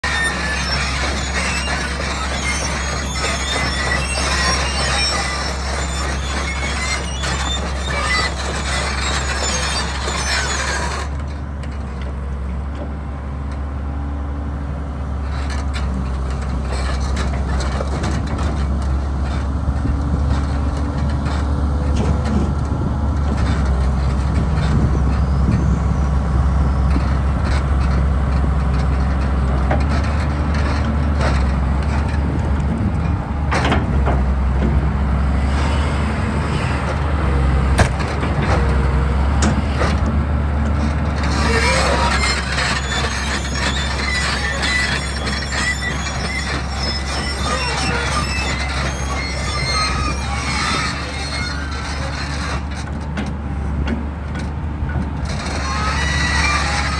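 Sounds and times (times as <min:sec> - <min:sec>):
excavator diesel engine running: 0:00.0 - 0:56.9.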